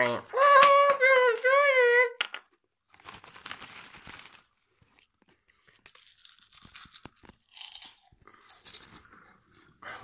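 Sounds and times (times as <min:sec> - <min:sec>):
foil crisp packet crinkling: 0:02.8 - 0:09.1.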